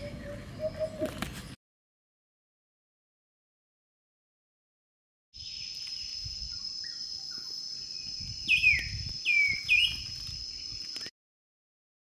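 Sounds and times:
bird calling: 0:00.0 - 0:01.6, 0:08.5 - 0:10.1
bird chirps: 0:00.0 - 0:01.6, 0:05.4 - 0:11.1
high-pitched insect trill: 0:05.4 - 0:11.1.

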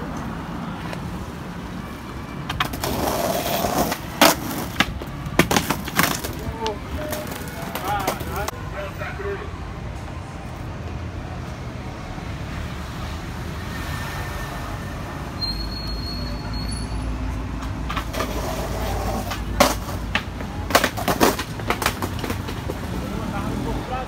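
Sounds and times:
skateboard wheels rolling on concrete: 0:00.0 - 0:14.0, 0:16.7 - 0:24.0
thin high squeal: 0:15.4 - 0:17.0
sharp clacks and knocks: 0:19.2 - 0:22.8.

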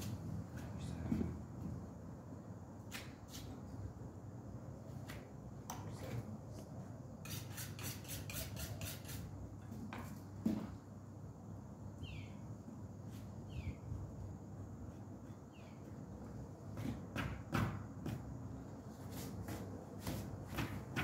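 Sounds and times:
bird chirping: 0:12.0 - 0:12.5, 0:13.4 - 0:13.9, 0:15.3 - 0:16.0.

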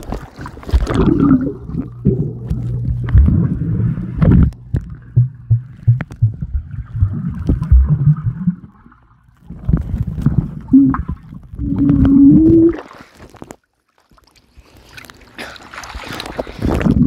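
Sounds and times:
underwater knocks and thumps: 0:00.0 - 0:12.8
muffled underwater sloshing: 0:00.0 - 0:13.5.

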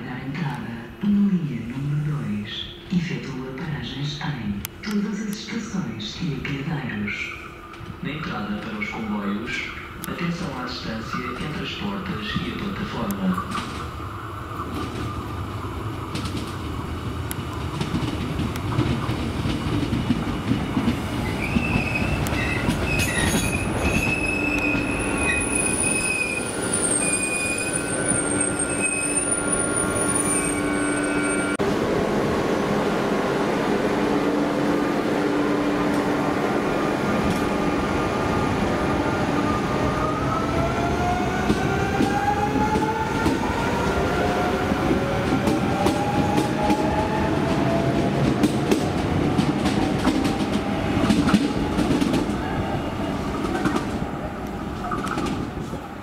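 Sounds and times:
train running over rails: 0:01.7 - 0:56.0
wheels and brakes squealing: 0:21.2 - 0:31.6.

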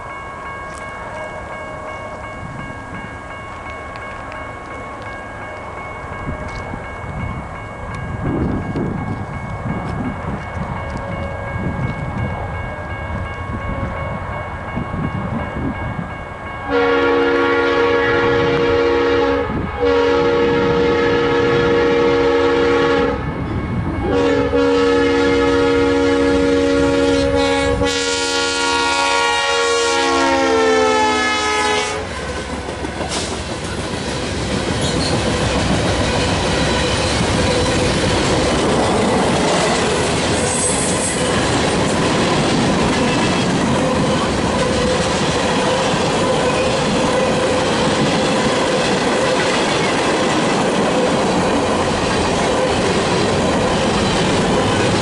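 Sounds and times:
train air horn blasts: 0:16.6 - 0:23.4, 0:24.0 - 0:32.2
train wheels clacking on rails: 0:32.0 - 0:55.0.

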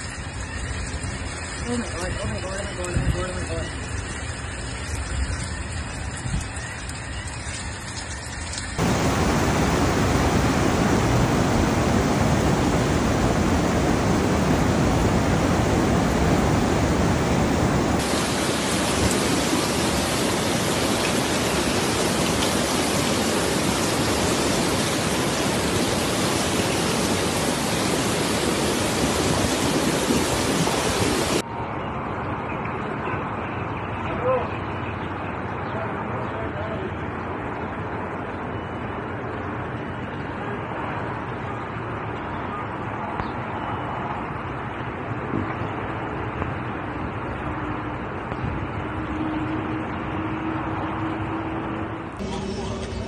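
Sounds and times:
rushing floodwater: 0:08.5 - 0:31.5.

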